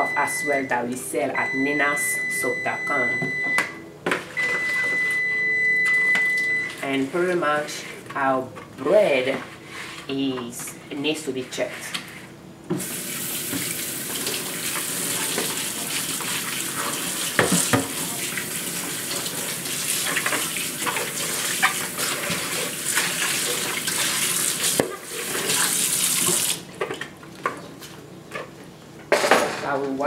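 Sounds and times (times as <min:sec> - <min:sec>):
plastic bowl rinsed and rubbed: 0:13.6 - 0:26.6.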